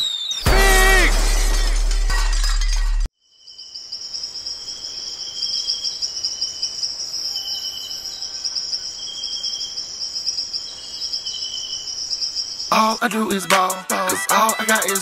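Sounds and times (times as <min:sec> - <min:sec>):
crickets chirping: 0:03.1 - 0:13.4.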